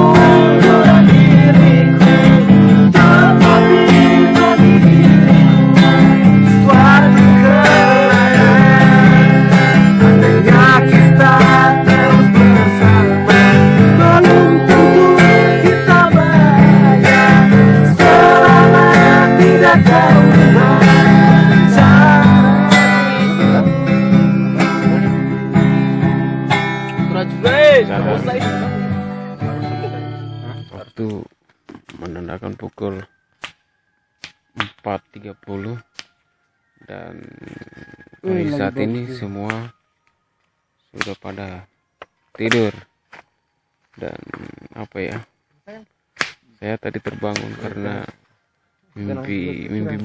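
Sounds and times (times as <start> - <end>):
acoustic guitar strumming: 0.0 - 33.3.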